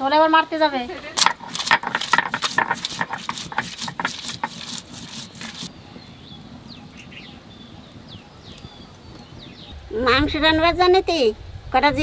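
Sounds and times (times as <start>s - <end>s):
stone scraping on stone slab: 1.2s - 5.7s
birds chirping: 1.8s - 9.9s.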